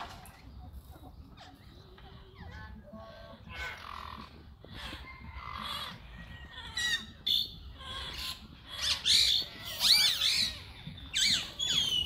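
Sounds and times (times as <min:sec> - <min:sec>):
birds calling: 0:00.0 - 0:12.0.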